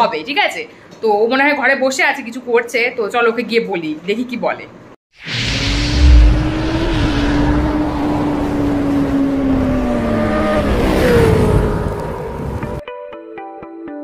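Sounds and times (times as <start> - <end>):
rushing noise: 5.2 - 12.6
motorcycle engine revving: 5.3 - 12.8.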